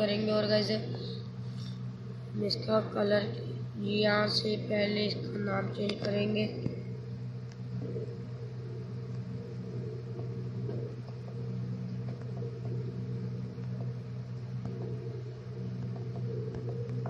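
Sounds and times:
low hum: 0.0s - 17.0s
faint irregular ticks: 9.0s - 17.0s.

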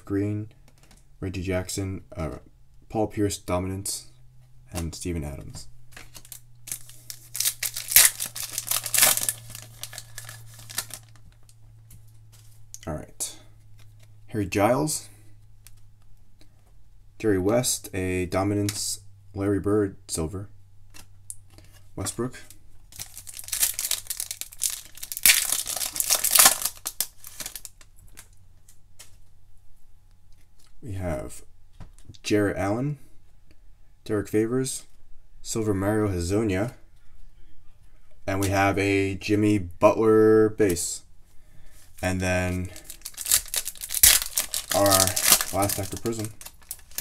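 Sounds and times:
foil pack tearing and crinkling: 6.0s - 11.5s, 22.9s - 27.8s, 42.7s - 47.0s.

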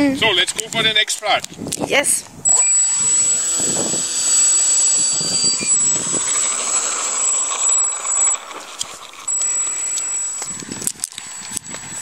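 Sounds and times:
propeller noise: 2.4s - 12.0s
model airplane motor whine: 2.5s - 12.0s.

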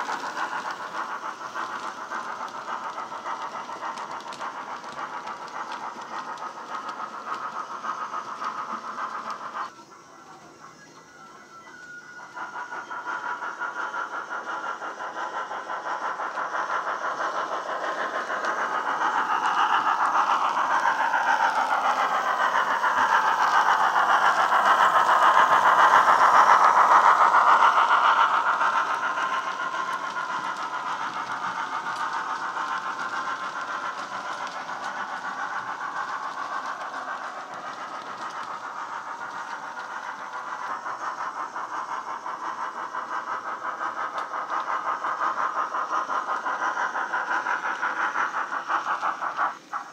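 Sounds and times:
model steam locomotive exhaust beats: 0.0s - 49.9s.

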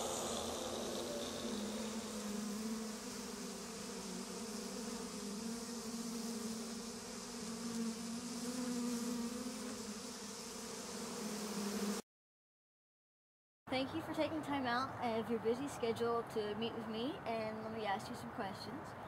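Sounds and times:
low buzzing drone: 0.0s - 11.3s.

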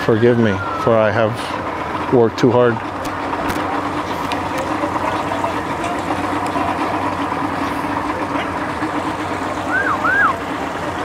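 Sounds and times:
vehicle engines humming: 0.0s - 11.0s
siren whoops: 9.7s - 10.4s.

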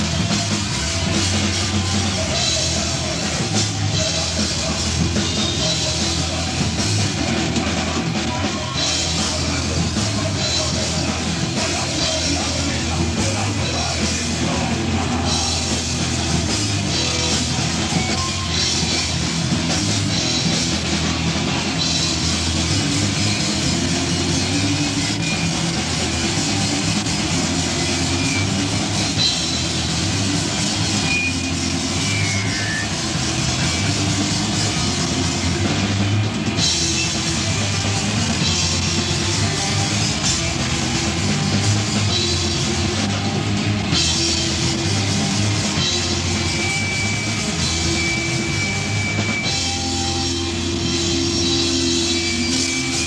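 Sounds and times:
distorted electric guitar: 0.0s - 53.0s
drum kit with cymbals: 0.0s - 53.0s.

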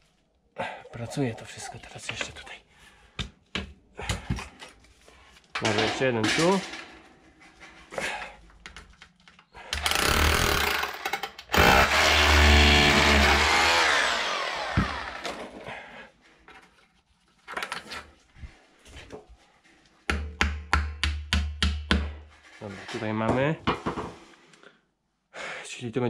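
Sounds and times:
power drill boring into tile: 9.8s - 15.5s.

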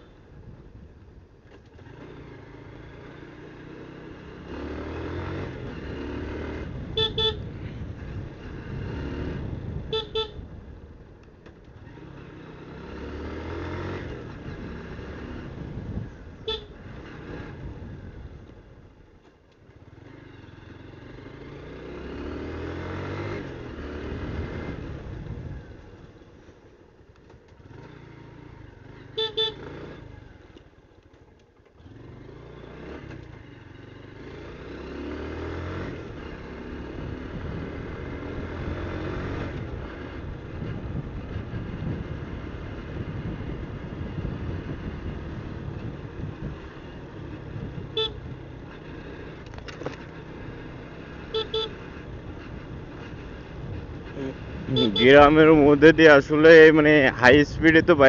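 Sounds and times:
motorcycle engine revving: 1.5s - 10.8s, 11.8s - 18.5s, 19.6s - 26.4s, 27.3s - 58.0s
horn tooting: 6.9s - 7.6s, 9.8s - 10.5s, 16.4s - 16.8s, 29.0s - 29.8s, 47.7s - 48.4s, 51.2s - 52.0s, 54.2s - 55.5s.

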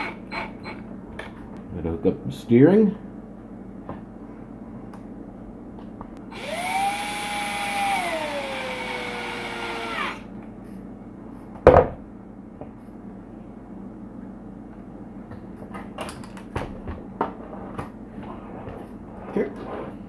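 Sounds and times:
cordless drill motor whining: 6.2s - 10.3s.

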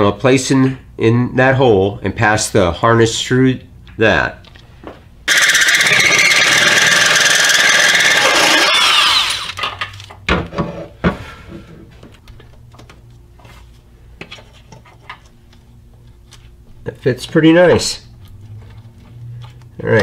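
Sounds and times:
power drill cutting metal: 5.3s - 9.7s.

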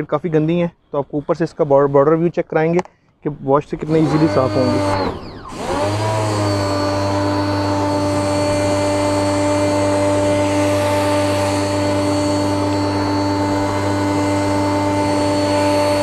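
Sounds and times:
pressure washer motor hum: 3.8s - 16.0s.

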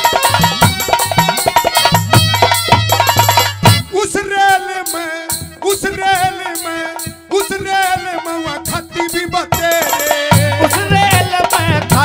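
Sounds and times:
light rattling percussion: 0.0s - 3.9s, 8.7s - 12.0s
heavy drum beats: 0.0s - 12.0s
man singing through microphone: 3.7s - 12.0s.

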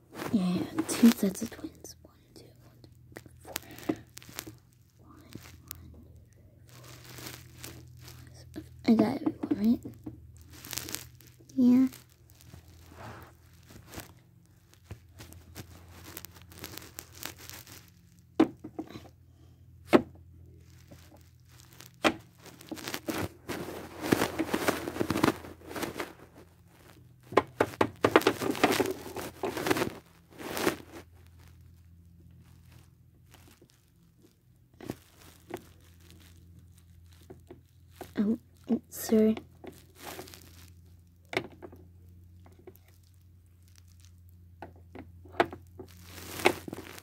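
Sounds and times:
faint low hum: 0.0s - 47.0s
phone handling rustle: 20.7s - 31.7s.

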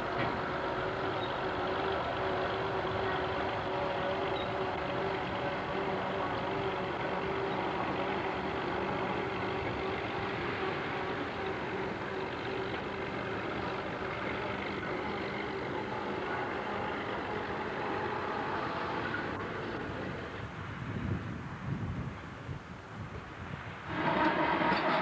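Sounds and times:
diesel locomotive engine running: 0.0s - 21.4s, 23.8s - 25.0s.

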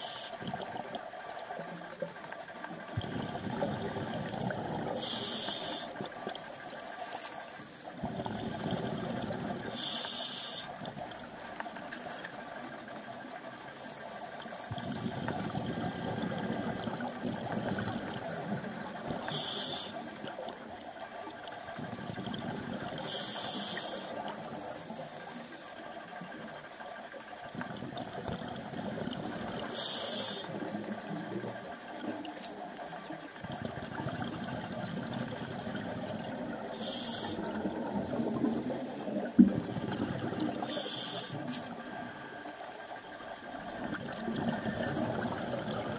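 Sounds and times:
regulator hissing inhalations: 5.0s - 6.0s, 9.7s - 10.7s, 19.2s - 20.2s, 23.0s - 25.6s, 29.7s - 30.6s, 36.7s - 37.5s, 40.6s - 41.6s
bubbling exhalations: 33.4s - 41.5s.

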